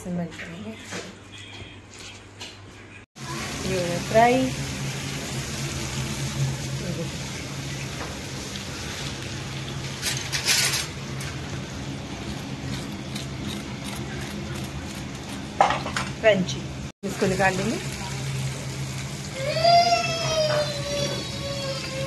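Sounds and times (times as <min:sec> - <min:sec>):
chicken deep-frying in oil: 0:03.2 - 0:22.0.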